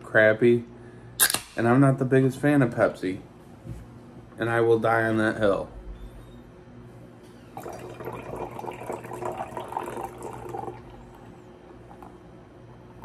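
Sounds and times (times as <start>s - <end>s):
fizzing splashing pour: 7.6s - 11.1s.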